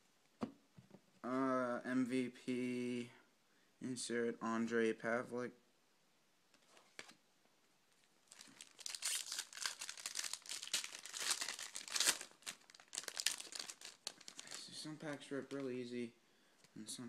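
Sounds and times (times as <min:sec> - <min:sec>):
foil wrapper crinkling and tearing: 0:08.3 - 0:15.7.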